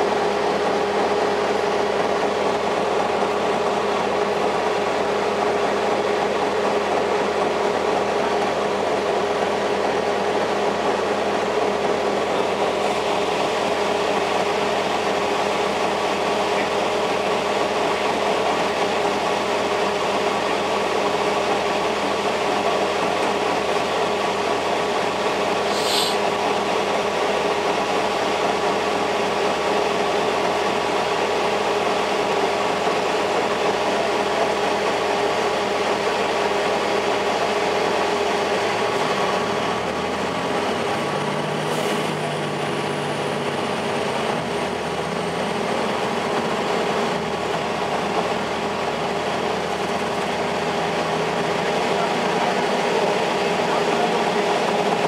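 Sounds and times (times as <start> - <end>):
bus diesel engine: 0.0 - 55.0
heater blowers whining: 0.0 - 55.0.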